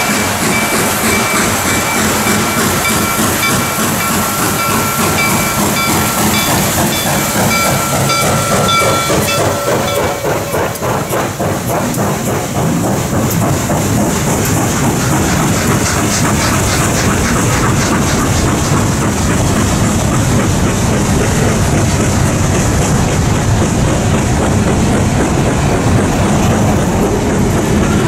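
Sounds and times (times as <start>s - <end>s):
high steady tones: 0.0s - 11.4s
steam locomotive running past: 0.0s - 28.0s
train wheels clattering over rails: 0.0s - 28.0s.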